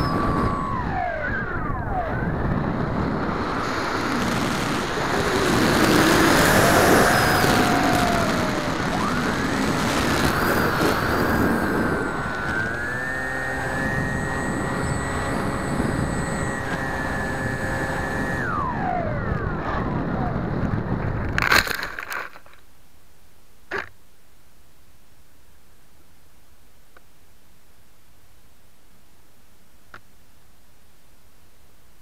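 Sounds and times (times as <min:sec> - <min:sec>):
wind rushing past: 0:00.0 - 0:21.4
electric motor and propeller whining: 0:00.0 - 0:22.5.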